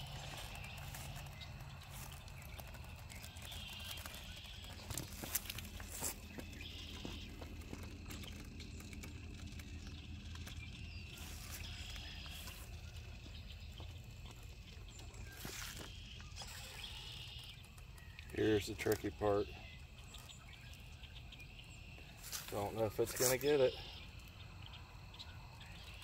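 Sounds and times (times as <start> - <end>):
toy truck climbing over rocks: 0.0 - 26.0.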